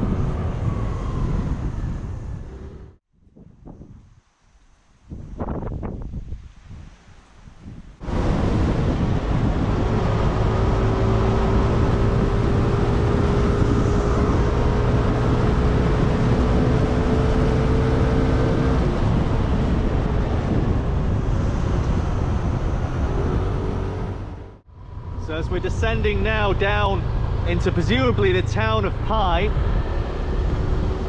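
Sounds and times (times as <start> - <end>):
wind rushing over microphone: 0.0 - 31.0.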